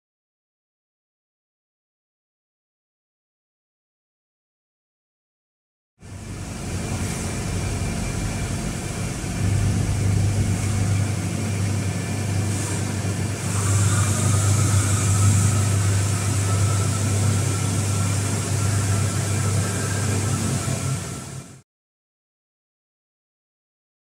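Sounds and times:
faint high whine: 6.0 - 12.2
low machine hum: 6.0 - 21.6
noisy background: 6.0 - 21.6
hiss: 12.5 - 16.9.

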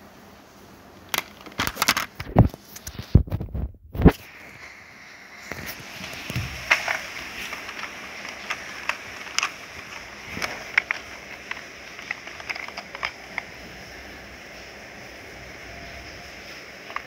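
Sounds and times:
plastic toy car clicks and knocks: 1.1 - 2.5, 6.2 - 13.5.

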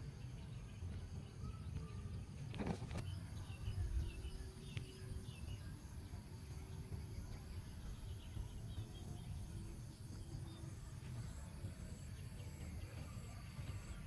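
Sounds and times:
faint bird chirps: 0.0 - 14.0
wind rumbling on microphone: 2.4 - 5.3.

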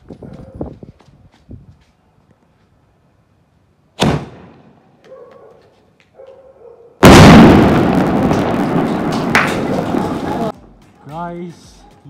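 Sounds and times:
firework launch bang: 4.0 - 4.5, 7.0 - 10.5
firework shell bursting: 7.0 - 10.5
dense sustained crackling noise: 7.0 - 10.6.

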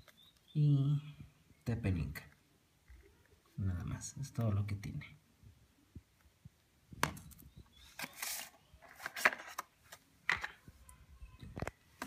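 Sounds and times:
cardboard box rustle: 7.9 - 10.0.

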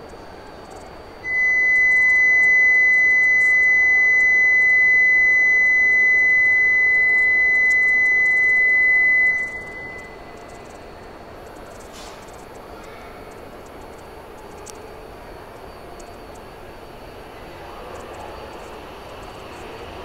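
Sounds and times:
high-pitched electronic warning beep: 1.3 - 10.8.

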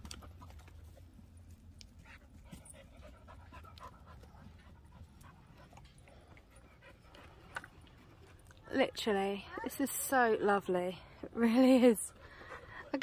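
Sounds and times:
dog panting: 2.0 - 8.5, 12.1 - 13.0.

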